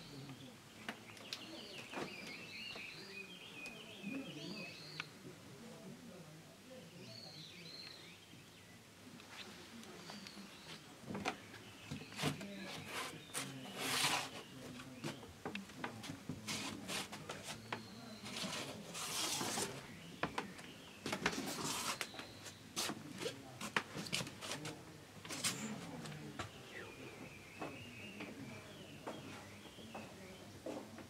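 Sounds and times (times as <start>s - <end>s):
bird chirping: 0.0s - 5.2s
footsteps on wooden decking: 9.2s - 31.0s
rustling: 16.1s - 26.0s.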